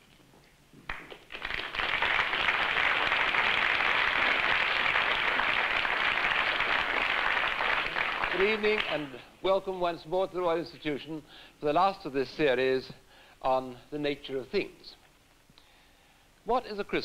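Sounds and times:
audience applauding: 0:00.9 - 0:09.2.

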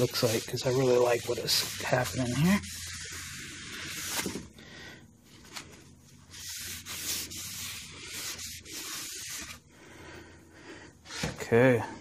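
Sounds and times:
towel rubbing on wood: 0:00.0 - 0:04.2, 0:06.3 - 0:09.6.

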